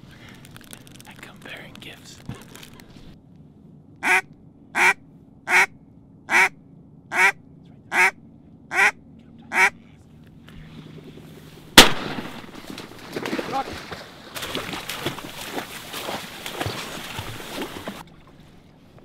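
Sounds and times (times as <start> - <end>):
duck quacking: 4.0 - 10.0
shotgun shot: 11.8 - 12.9.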